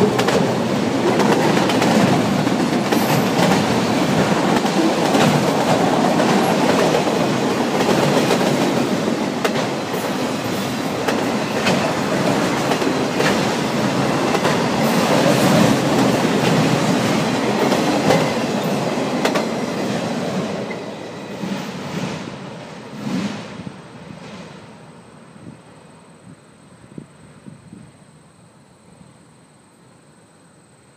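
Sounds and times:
train wheel clicks: 0.0s - 8.8s
steel wheels rumbling on rail: 0.0s - 25.8s.

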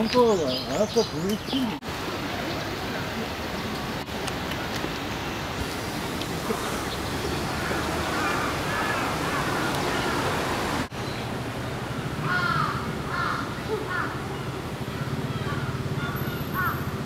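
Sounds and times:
outdoor background rush: 0.0s - 17.0s
faint crow caws: 7.5s - 10.2s, 12.2s - 14.2s, 14.9s - 17.0s.

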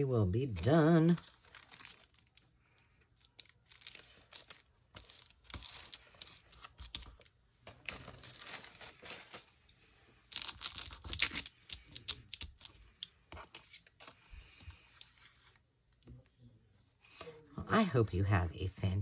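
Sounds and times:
paper rustling and crinkling: 0.4s - 2.5s, 3.2s - 9.6s.

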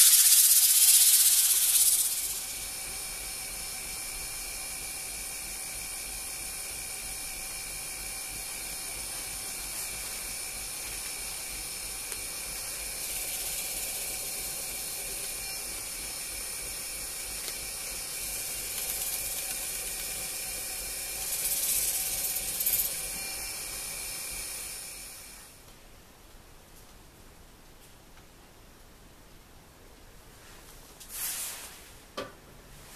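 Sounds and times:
wood lathe motor whine: 0.0s - 25.5s.

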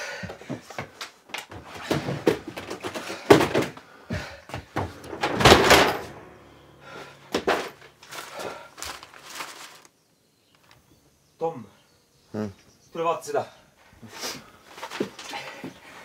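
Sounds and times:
knocks of wooden boxes and doors: 0.2s - 6.3s
objects clattering: 0.4s - 9.9s.

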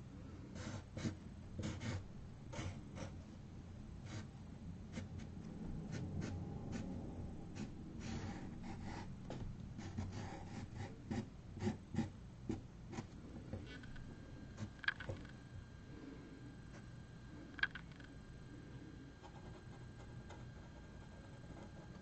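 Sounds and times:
marker rubbing on canvas board: 0.6s - 3.2s.

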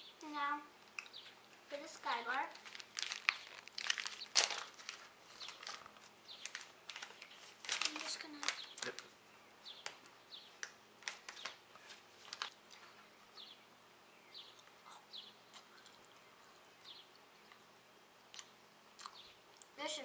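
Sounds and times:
candy wrapper crinkling: 1.8s - 9.1s, 10.6s - 12.8s
chewing: 14.6s - 19.8s.

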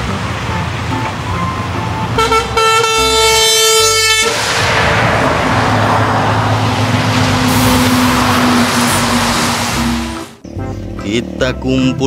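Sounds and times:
heavy truck passing: 0.0s - 11.0s
truck air horn: 2.1s - 4.5s, 7.3s - 10.3s.

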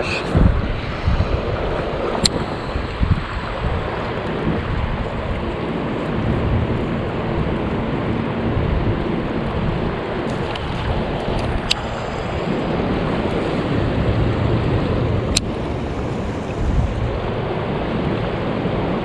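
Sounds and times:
river water rushing: 0.0s - 19.0s
wind buffeting microphone: 0.0s - 19.0s.

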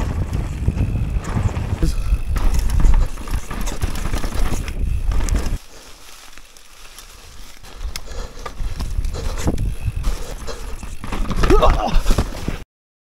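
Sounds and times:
wind buffeting microphone: 0.0s - 5.6s, 7.7s - 11.8s
bike rattling over roots and rocks: 0.0s - 12.6s.

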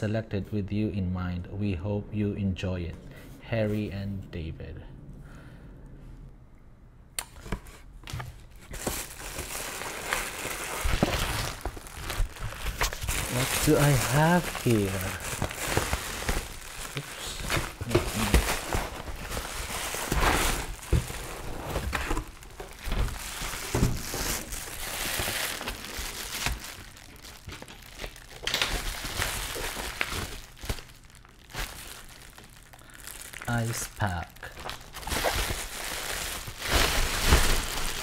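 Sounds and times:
foil bubble liner crinkling: 8.5s - 38.0s
packaging knocks: 8.7s - 33.5s, 34.5s - 38.0s.

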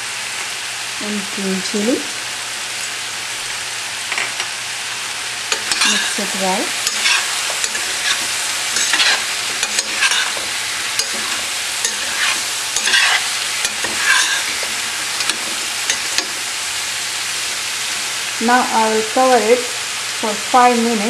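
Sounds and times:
vegetables sizzling in oil: 0.0s - 21.0s
spatula scraping a pan: 5.5s - 16.5s.

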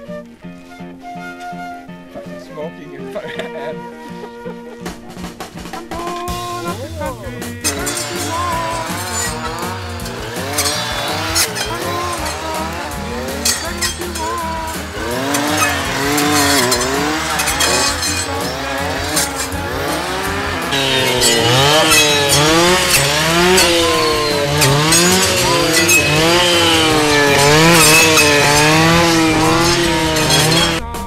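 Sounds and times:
brush saws revving: 5.2s - 31.0s.

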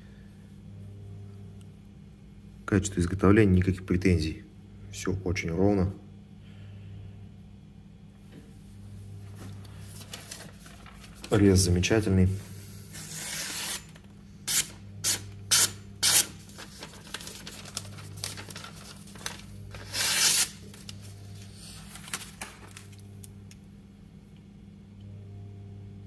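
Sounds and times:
faint paper handling: 9.2s - 14.0s, 16.4s - 23.2s
knife slicing newspaper: 12.9s - 20.9s.

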